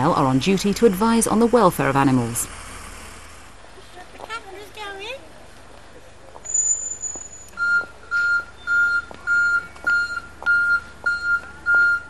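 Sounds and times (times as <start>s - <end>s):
reversing alarm beeping: 6.5s - 12.0s.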